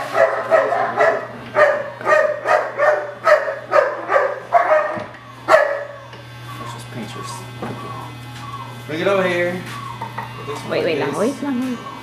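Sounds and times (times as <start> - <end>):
dog barking: 0.0 - 6.0.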